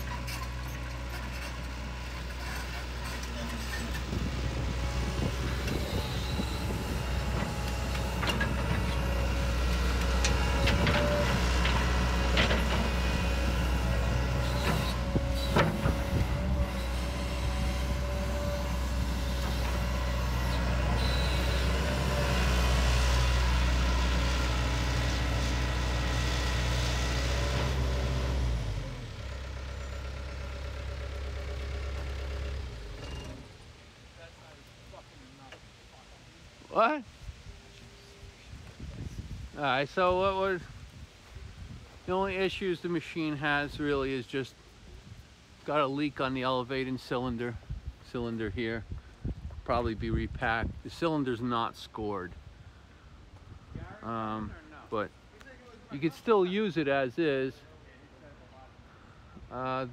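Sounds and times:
excavator diesel engine running: 0.0s - 33.6s.

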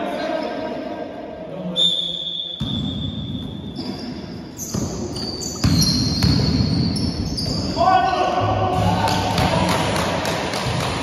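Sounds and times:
shoes squeaking on court: 2.6s - 7.8s
basketball dribbling: 4.7s - 6.9s.

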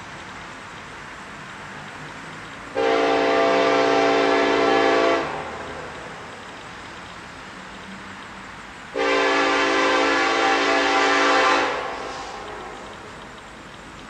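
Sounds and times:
locomotive air horn blast: 2.7s - 5.6s, 8.9s - 12.8s.

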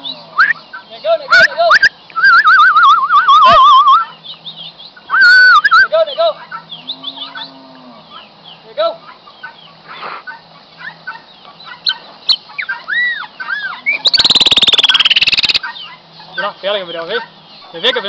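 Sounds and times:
blackbird whistling and chirping: 0.0s - 0.7s, 1.3s - 6.0s, 11.8s - 15.6s.

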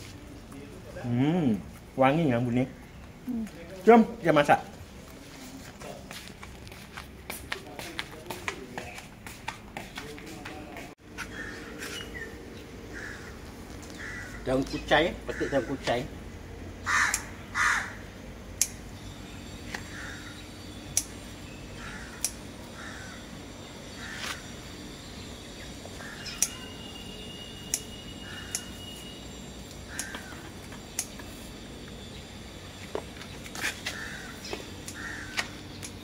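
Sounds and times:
bird calling: 11.2s - 16.1s, 16.8s - 18.1s, 18.7s - 32.3s, 32.9s - 36.0s.

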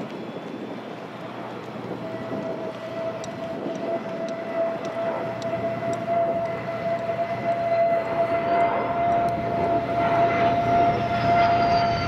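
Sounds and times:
high jet whine: 0.0s - 12.0s
jet engine rush: 0.0s - 12.0s.

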